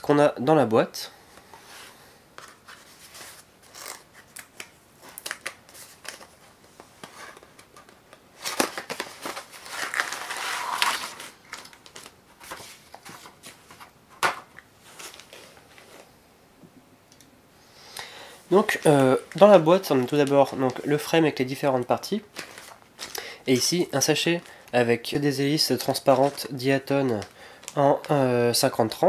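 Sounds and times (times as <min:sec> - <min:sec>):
plastic bags crinkling: 0:07.1 - 0:13.8, 0:18.5 - 0:21.2, 0:22.0 - 0:24.8, 0:25.5 - 0:28.7
cardboard scraping and rustling: 0:08.4 - 0:11.4.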